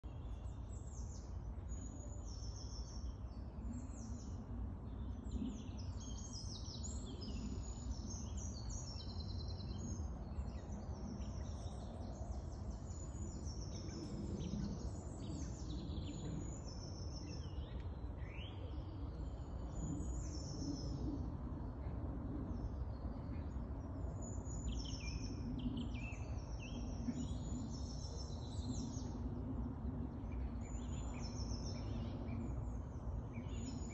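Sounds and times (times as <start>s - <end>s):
birds chirping and singing: 5.0s - 21.2s, 22.6s - 29.3s, 30.2s - 33.9s.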